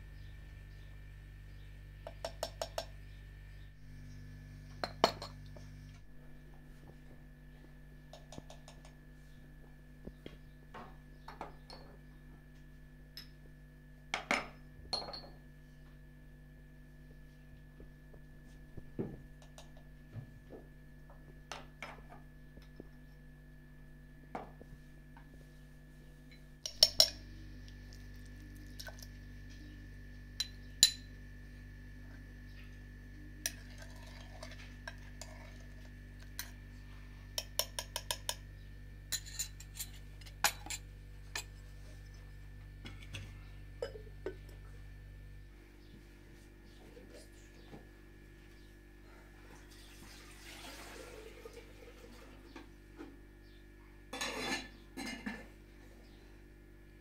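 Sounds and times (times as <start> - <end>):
steady low hum: 0.0 - 50.0, 51.6 - 57.0
spoon clinking on bowls: 4.8 - 5.4, 14.2 - 15.4, 26.3 - 27.3, 30.4 - 31.1, 33.5 - 35.5, 37.4 - 38.4, 39.1 - 40.8, 43.8 - 44.5.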